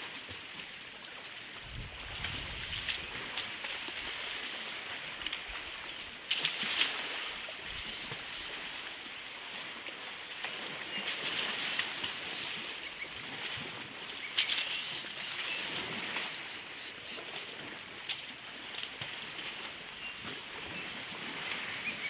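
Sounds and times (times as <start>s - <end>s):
outdoor hiss: 0.0s - 13.6s.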